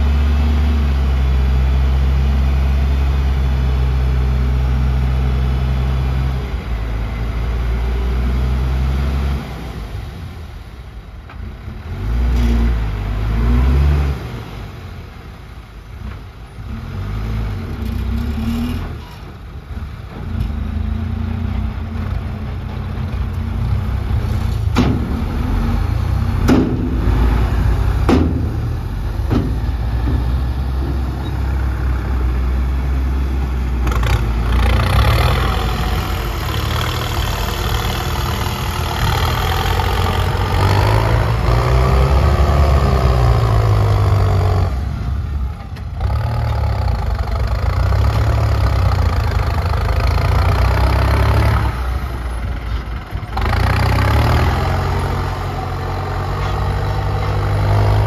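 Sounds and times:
heavy diesel engine revving: 0:16.6 - 0:19.0, 0:19.7 - 0:58.0
sharp knocks: 0:26.4 - 0:27.2, 0:28.0 - 0:28.7, 0:29.3 - 0:30.3.

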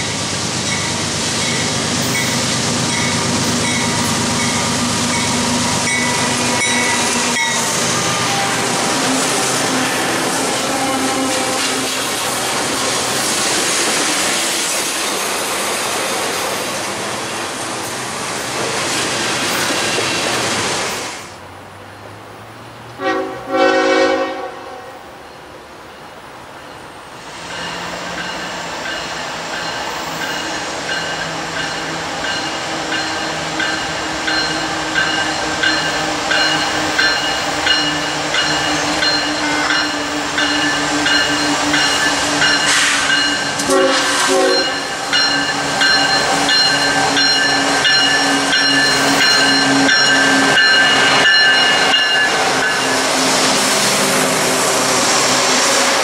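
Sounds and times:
diesel locomotive engines: 0:00.0 - 0:56.0
rail noise: 0:00.0 - 0:56.0
train horn blasts: 0:05.7 - 0:12.0, 0:23.0 - 0:25.1, 0:38.7 - 0:40.0, 0:42.7 - 0:45.0.

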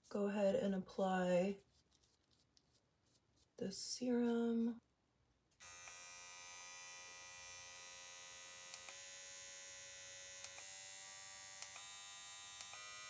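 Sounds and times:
pen motor buzzing: 0:05.6 - 0:13.0.

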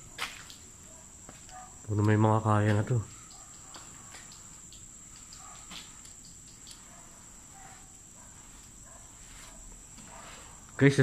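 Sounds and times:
crickets chirring: 0:00.0 - 0:11.0
faint clicks: 0:03.1 - 0:07.0.

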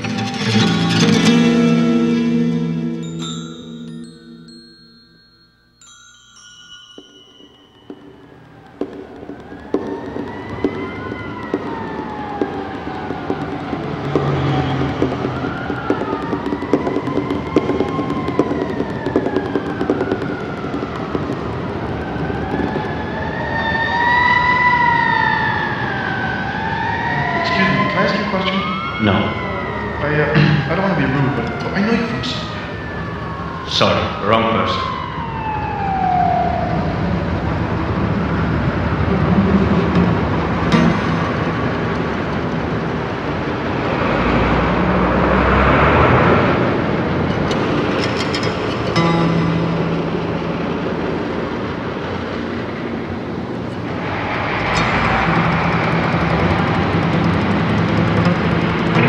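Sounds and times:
street traffic hiss: 0:07.3 - 0:25.9, 0:37.0 - 0:59.0
siren wailing: 0:07.9 - 0:47.3
subway train rumble and rattle: 0:08.3 - 0:27.8, 0:34.8 - 0:59.0
sharp clicks: 0:08.4 - 0:22.9.

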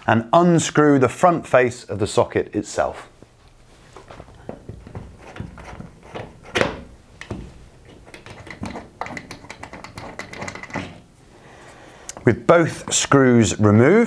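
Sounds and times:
screwdriver clicking on screws: 0:07.2 - 0:10.9.

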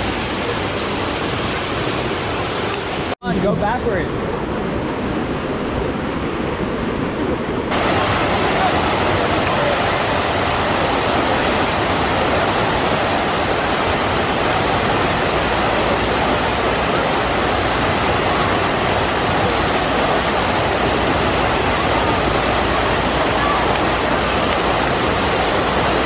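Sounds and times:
water rushing down a slide: 0:07.7 - 0:26.0.

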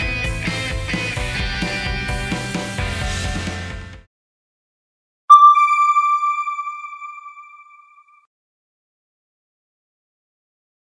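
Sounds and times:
electronic chime ringing: 0:05.3 - 0:08.0.

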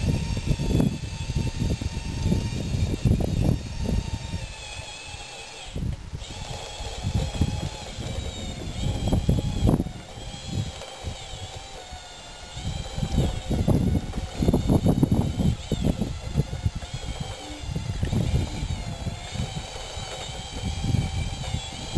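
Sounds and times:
electric motor whine: 0:00.0 - 0:21.9
low rumbles: 0:00.0 - 0:21.9.

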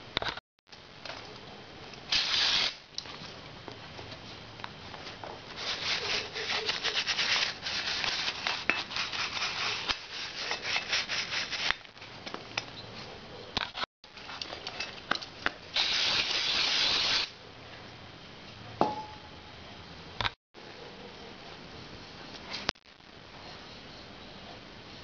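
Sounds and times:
gritty rubbing on metal: 0:05.6 - 0:11.8.

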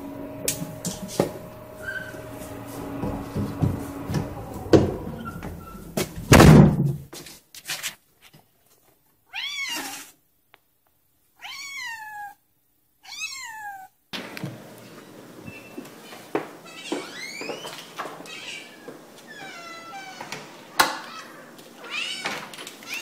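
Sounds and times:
heavy thump: 0:00.2 - 0:07.1
cat meowing: 0:09.3 - 0:10.1, 0:11.4 - 0:12.4, 0:13.0 - 0:14.0, 0:18.2 - 0:23.0.

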